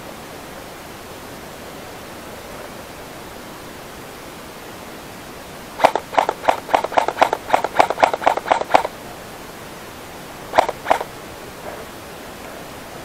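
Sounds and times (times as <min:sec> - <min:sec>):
airsoft gun shots: 0:05.8 - 0:09.0, 0:10.5 - 0:11.1.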